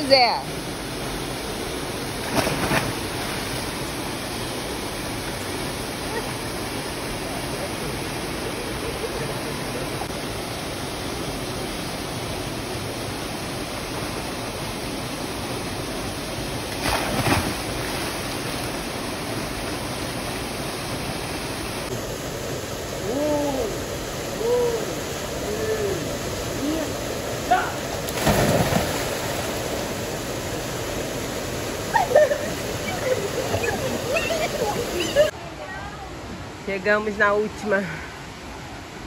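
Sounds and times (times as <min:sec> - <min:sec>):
stream and waterfall rushing: 0:00.0 - 0:39.0
splash of diving into water: 0:02.2 - 0:03.4, 0:16.8 - 0:18.2, 0:28.1 - 0:29.5.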